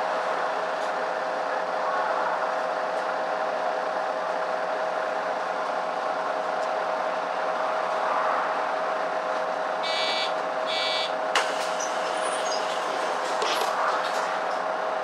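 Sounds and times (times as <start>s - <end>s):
bus engine hum and rumble: 0.0s - 15.0s
short electronic beeps: 9.8s - 11.1s.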